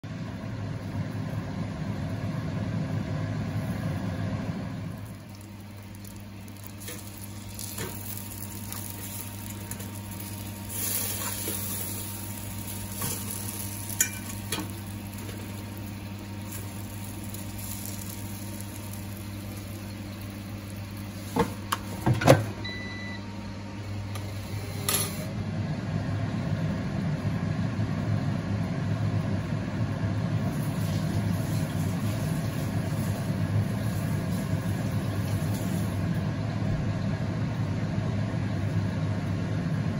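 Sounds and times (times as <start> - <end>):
air fryer fan hum: 0.0 - 39.9
patties sizzling: 4.8 - 22.1, 30.4 - 36.1.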